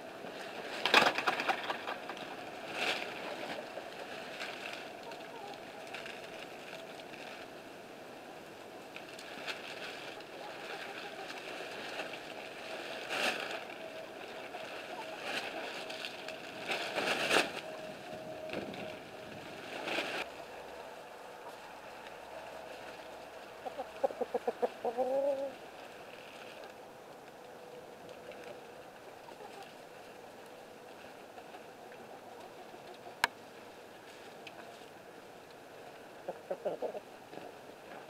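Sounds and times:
rustling scrapes: 0:09.0 - 0:26.8
hen clucking: 0:10.2 - 0:11.7, 0:23.6 - 0:25.6, 0:29.2 - 0:29.8, 0:36.2 - 0:37.1.

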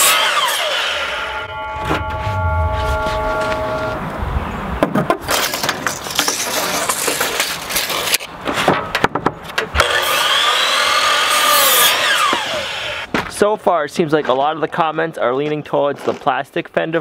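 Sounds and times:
miter saw hum: 0:00.0 - 0:04.2.

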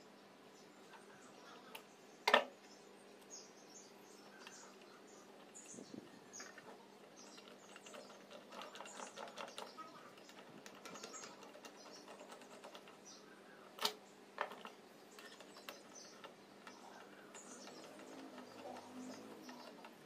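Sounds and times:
metal clicks and ticks: 0:06.3 - 0:13.1, 0:13.7 - 0:20.0.

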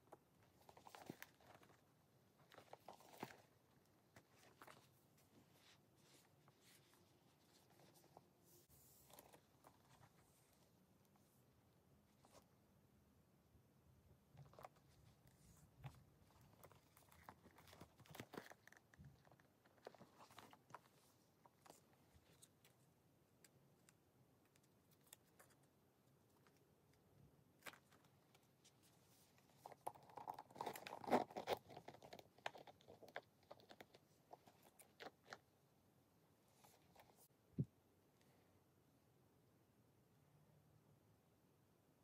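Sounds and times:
soft rustles of a bag: 0:00.4 - 0:11.4.

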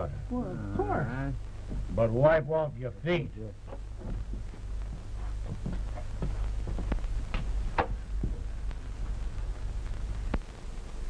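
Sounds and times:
footsteps and shuffling: 0:00.4 - 0:02.0, 0:03.6 - 0:10.4.

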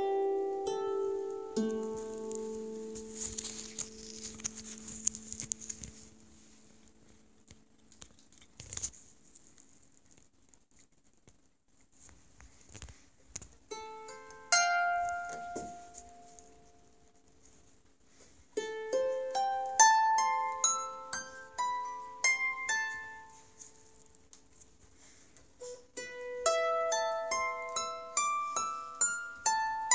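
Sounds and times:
harp notes plucked: 0:00.0 - 0:06.3, 0:13.7 - 0:16.5.

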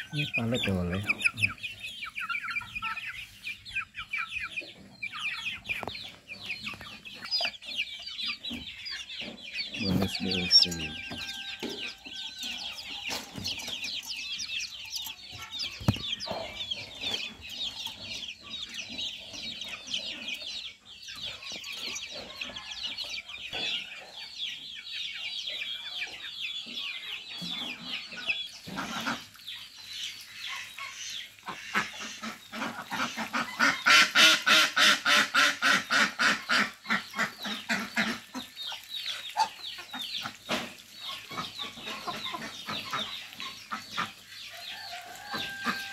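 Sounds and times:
chickens clucking rapidly: 0:00.0 - 0:45.9
chicks peeping: 0:00.0 - 0:45.9.

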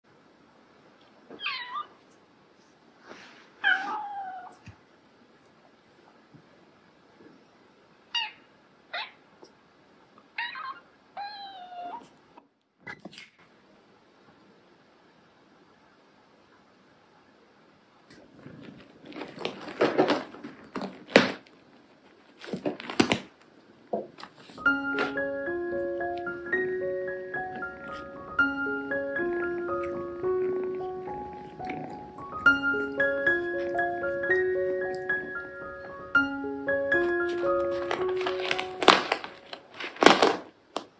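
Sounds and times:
kitten meowing: 0:01.4 - 0:02.0
kitten claws scratching fabric: 0:18.2 - 0:21.5, 0:29.3 - 0:33.9.

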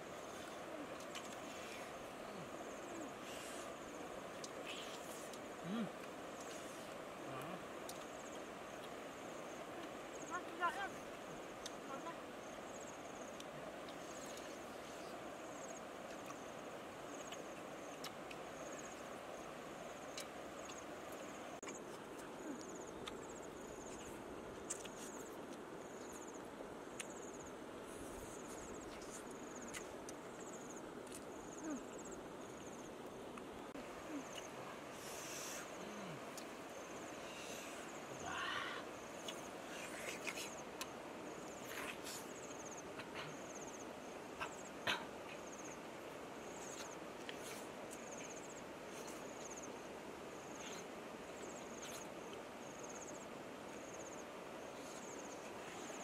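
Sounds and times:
crickets chirping: 0:00.0 - 0:56.0
outdoor hiss: 0:00.0 - 0:56.0
insects chirping in pulses: 0:28.2 - 0:56.0.

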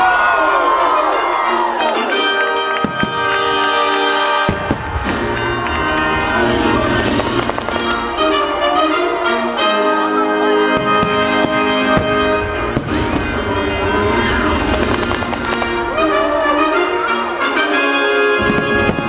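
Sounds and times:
show music with brass chords: 0:00.2 - 0:19.0
fireworks bursting and crackling: 0:02.7 - 0:09.4, 0:10.7 - 0:17.0, 0:18.4 - 0:19.0.

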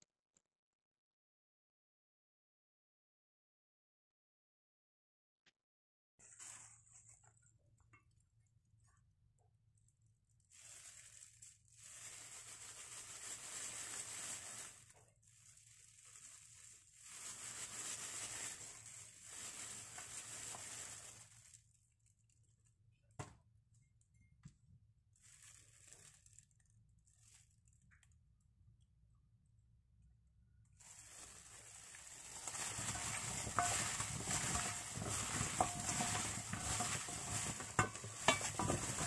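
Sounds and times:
plastic glove crinkling: 0:06.2 - 0:08.9, 0:09.6 - 0:22.7, 0:25.0 - 0:28.4, 0:30.7 - 0:39.0.

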